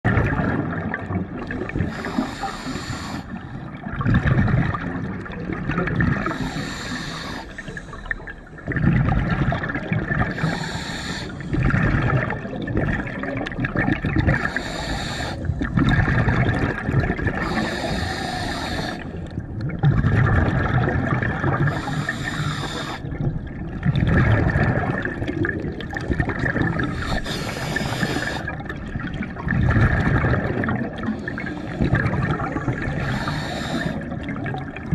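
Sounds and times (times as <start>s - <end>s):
hissing inhale through regulator: 1.7s - 3.8s, 6.2s - 8.6s, 10.3s - 11.8s, 14.3s - 15.7s, 17.3s - 19.3s, 21.6s - 23.2s, 26.8s - 28.7s, 30.9s - 34.3s
rumbling exhaust bubbles: 11.5s - 14.6s, 15.5s - 18.4s, 19.1s - 34.9s.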